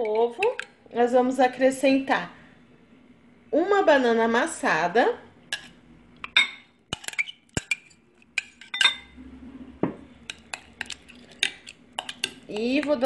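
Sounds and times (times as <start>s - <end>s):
spoon clinking against glass bowls: 5.6s - 9.2s, 10.3s - 13.0s.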